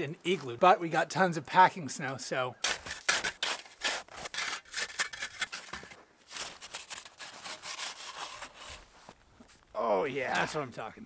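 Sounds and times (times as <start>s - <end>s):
snow saw rasping through snow: 6.4s - 8.9s.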